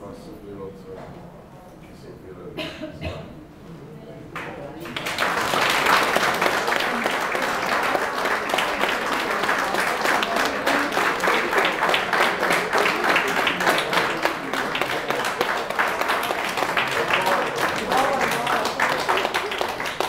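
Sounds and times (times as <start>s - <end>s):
audience applauding: 4.8s - 20.0s.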